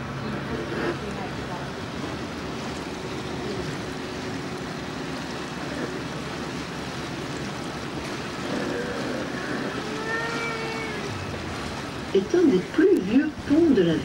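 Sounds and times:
boat engine: 0.0s - 14.0s
water noise: 0.0s - 14.0s.

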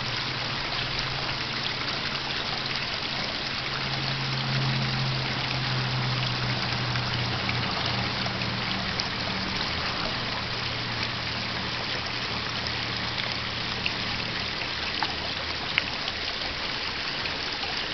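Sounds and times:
water trickling and splashing: 0.0s - 17.9s.

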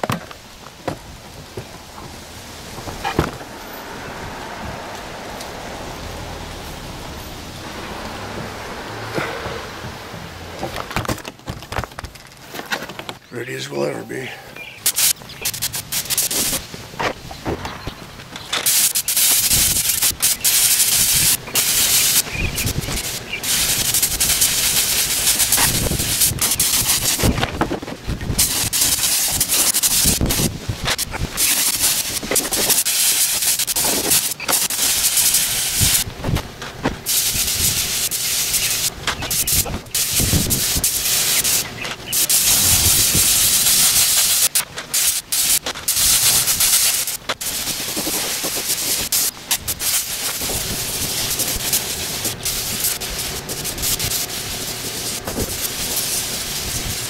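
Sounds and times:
paint spray gun hissing: 14.7s - 16.7s, 18.6s - 27.4s, 28.3s - 36.1s, 37.0s - 57.0s.

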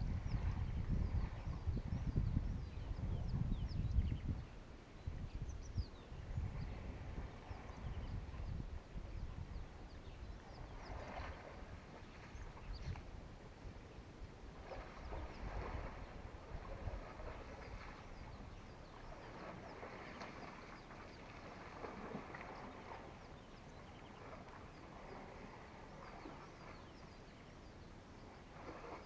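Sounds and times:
wind rumble on microphone: 0.0s - 27.5s, 28.2s - 29.0s.

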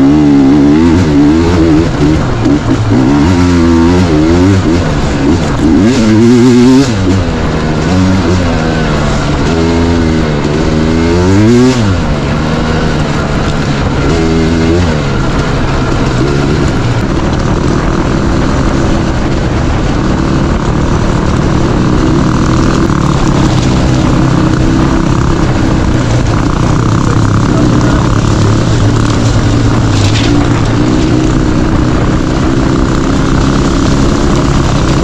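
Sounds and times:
dirt bike engine revving: 0.0s - 35.0s.

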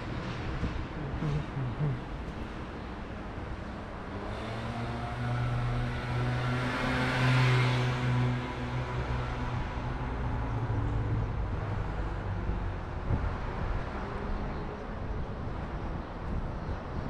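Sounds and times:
passing vehicle engine hum: 0.0s - 16.1s
road traffic rumble: 0.0s - 17.0s.

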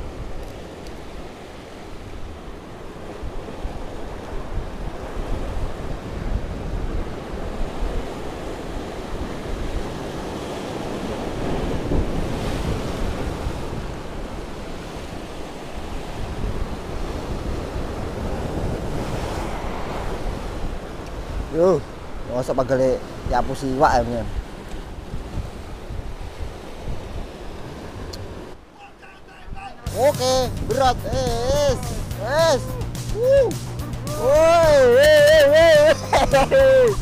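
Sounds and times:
wind buffeting microphone: 0.0s - 28.6s, 29.4s - 37.0s
waves breaking on rocks: 0.0s - 29.0s.

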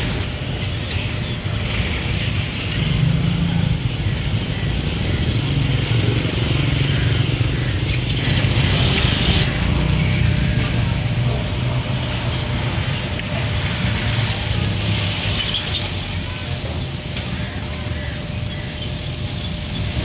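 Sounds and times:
traffic passing: 0.0s - 20.0s.

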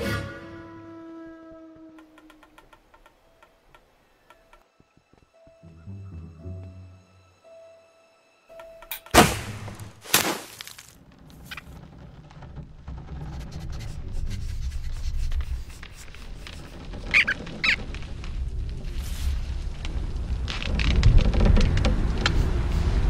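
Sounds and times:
loud sharp cracks: 9.1s - 10.6s
squeaky animal-like calls: 17.0s - 17.9s.

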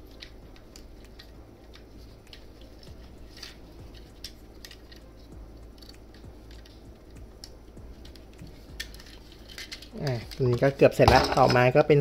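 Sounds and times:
plastic toy parts clicking: 0.1s - 5.1s, 7.4s - 10.8s.

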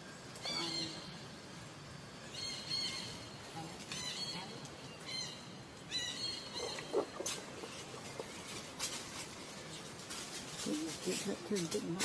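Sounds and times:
rustles over dry leaves: 5.9s - 12.0s.

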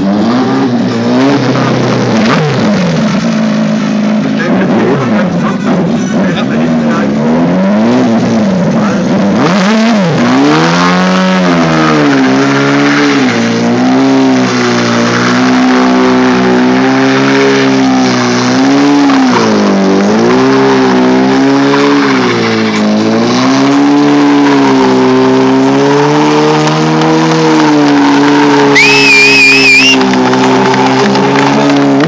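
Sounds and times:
motorcycle engine revving high: 0.0s - 32.0s
tyre squealing on asphalt: 0.0s - 32.0s.

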